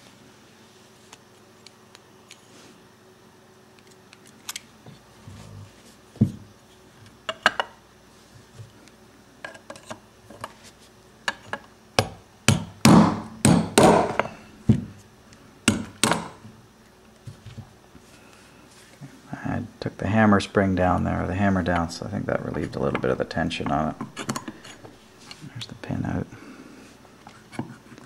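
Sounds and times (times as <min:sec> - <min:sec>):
hammer tapping a pin punch: 0:11.3 - 0:14.3, 0:15.7 - 0:16.4.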